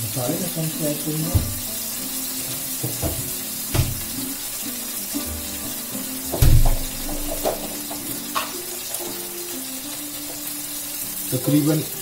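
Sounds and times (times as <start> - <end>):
sauce sizzling in a wok: 0.0 - 12.0
heavy thud: 1.3 - 1.7, 2.9 - 4.1, 6.3 - 7.7.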